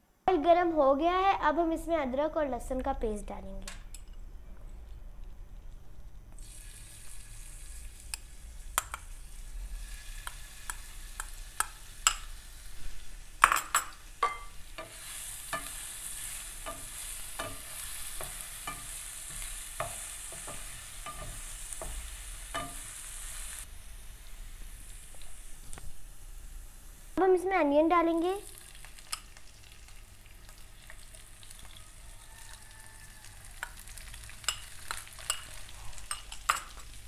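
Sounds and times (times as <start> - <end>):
paste sizzling in hot oil: 6.4 - 27.2, 28.1 - 37.0
spatula scraping a pan: 14.7 - 23.5.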